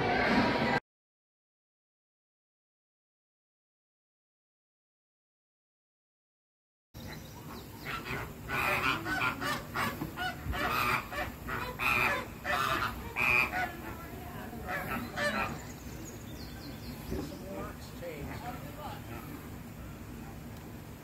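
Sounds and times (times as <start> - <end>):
flamingos honking: 7.0 - 21.0.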